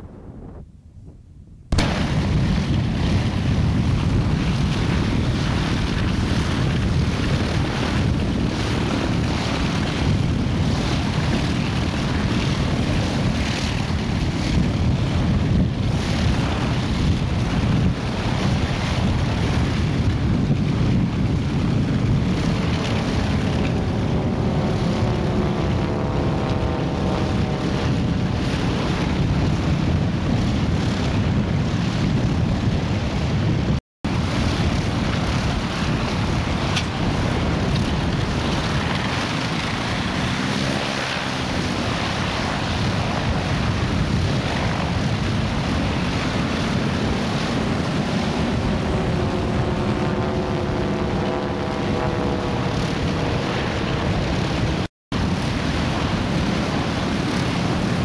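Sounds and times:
wind noise on microphone: 0.0 - 58.0
radial engine running: 22.3 - 29.3, 46.0 - 54.9
faint rising whine: 48.2 - 54.8.

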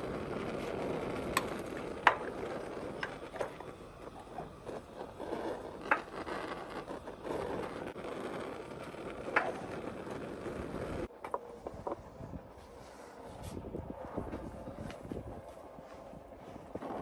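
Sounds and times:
wooden stick scraping a pot: 0.0 - 11.1
wind on microphone: 0.0 - 17.0.

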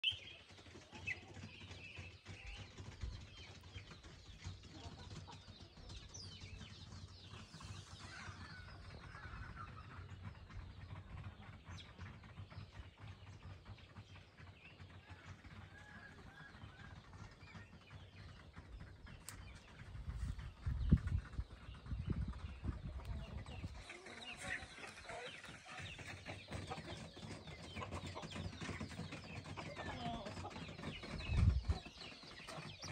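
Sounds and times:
small birds chirping: 0.0 - 15.2, 15.8 - 32.9
chickens clucking: 0.6 - 13.8, 14.4 - 32.9.

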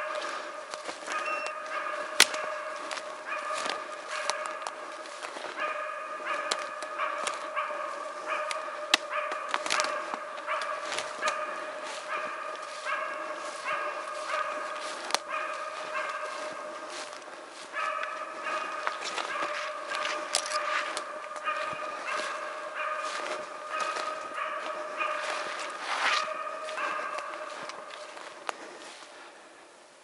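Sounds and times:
dog barking: 0.0 - 28.4
sharp snaps: 2.2 - 2.5.

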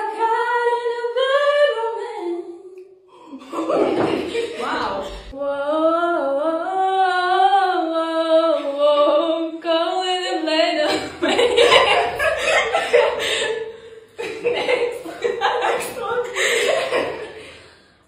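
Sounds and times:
high voice singing wordless melody: 0.0 - 11.2.

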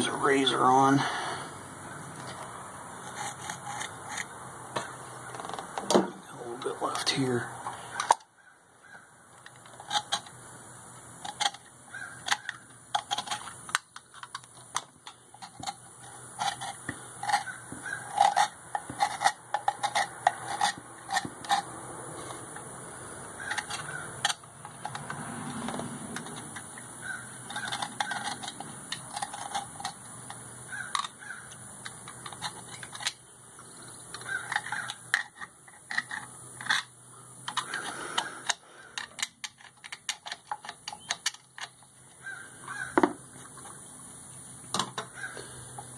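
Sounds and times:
metal scraper scraping gasket: 3.0 - 4.3, 15.1 - 22.7, 23.4 - 25.2.

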